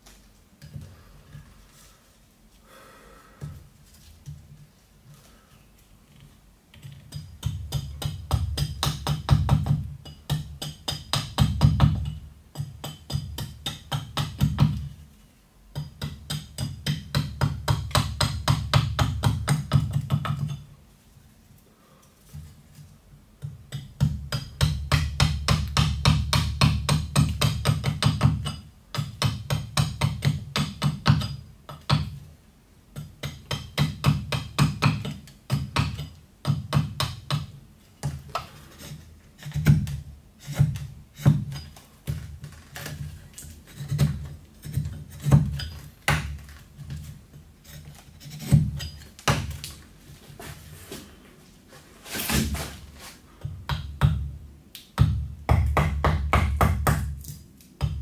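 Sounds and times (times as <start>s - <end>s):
axe chopping wood: 43.8s - 46.5s, 48.4s - 49.8s, 55.0s - 58.0s.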